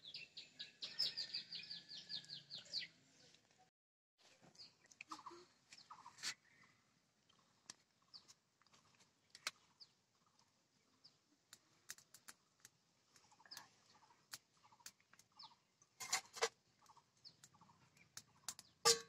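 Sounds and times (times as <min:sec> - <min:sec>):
bird clucking and chirping: 0:00.6 - 0:02.9.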